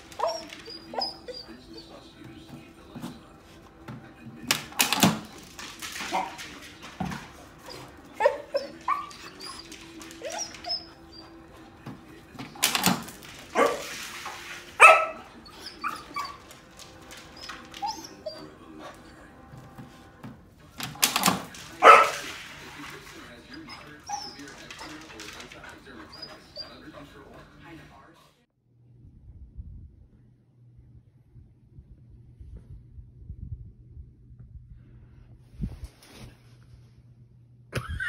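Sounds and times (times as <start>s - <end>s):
dog barking: 0.0s - 2.0s, 6.0s - 11.4s, 12.5s - 16.5s, 21.2s - 22.5s
dog whining and yipping: 0.0s - 2.0s, 7.6s - 11.6s, 13.6s - 16.5s, 17.2s - 18.6s, 23.6s - 25.0s, 26.0s - 26.8s.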